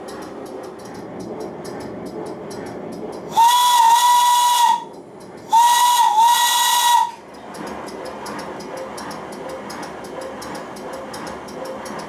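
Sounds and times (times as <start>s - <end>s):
model locomotive exhaust beats: 0.0s - 12.0s
locomotive whistle: 3.3s - 4.9s, 5.5s - 7.2s.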